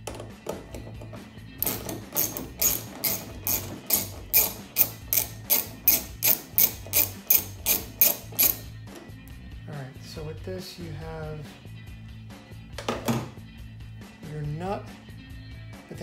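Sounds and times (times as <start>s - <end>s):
ratchet wrench clicking: 1.6s - 8.8s.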